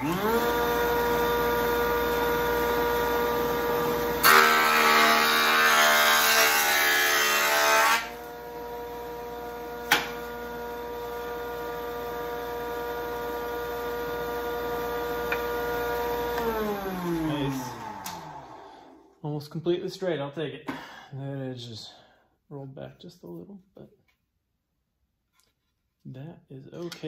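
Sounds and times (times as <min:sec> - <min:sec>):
jointer motor whine: 0:00.0 - 0:05.6, 0:08.2 - 0:19.2
jointer cutting wood: 0:00.0 - 0:19.1.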